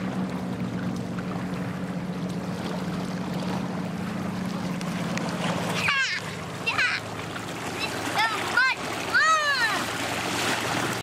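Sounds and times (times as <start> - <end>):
motorboat engine humming: 0.0 - 11.0.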